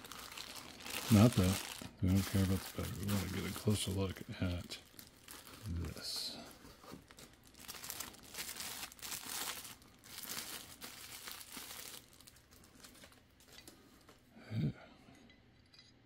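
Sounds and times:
plastic bag crinkling: 0.0s - 14.2s
quiet handling noises: 5.6s - 7.4s, 12.6s - 14.3s.

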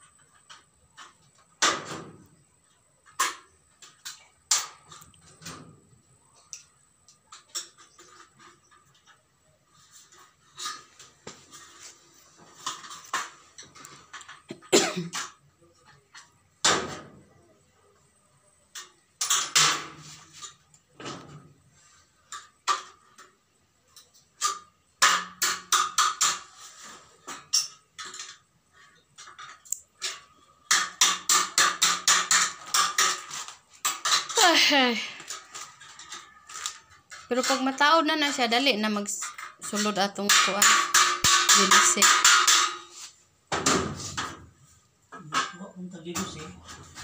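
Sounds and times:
metallic clicks taps and scrapes: 27.3s - 34.5s.

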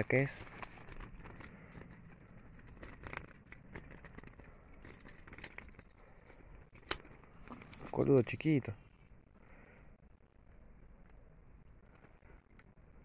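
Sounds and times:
bird trap cage clicking and rattling: 2.8s - 5.9s.

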